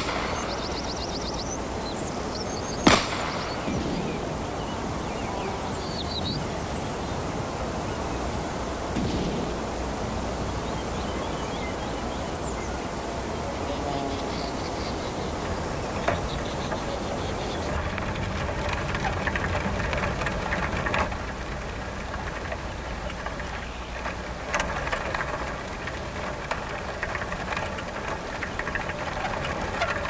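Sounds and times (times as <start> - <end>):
faint bird chirps: 0.0 - 17.8
outdoor hiss: 0.0 - 30.0
gunshot with echo: 2.9 - 4.2.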